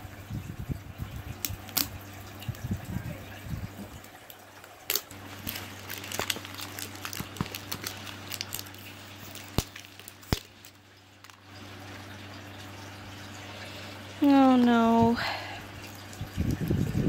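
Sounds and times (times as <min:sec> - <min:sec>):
plastic wrap crinkling: 0:03.9 - 0:11.5.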